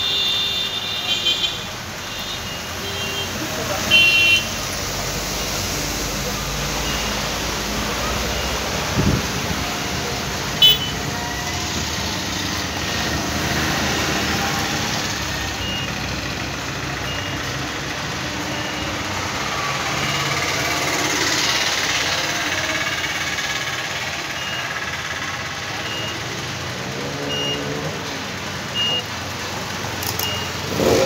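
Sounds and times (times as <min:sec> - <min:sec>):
engine and street noise: 0:00.0 - 0:31.0
short high beeps: 0:30.0 - 0:30.6.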